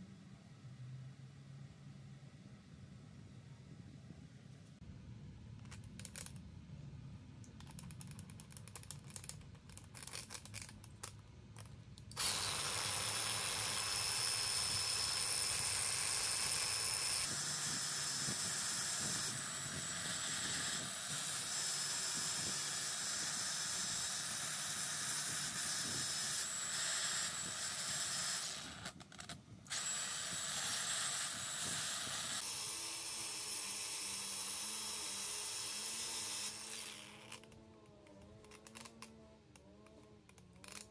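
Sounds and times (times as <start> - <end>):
metal parts clicking and rattling: 7.6 - 12.2, 37.0 - 40.9
angle grinder running: 12.1 - 29.0, 29.7 - 37.5.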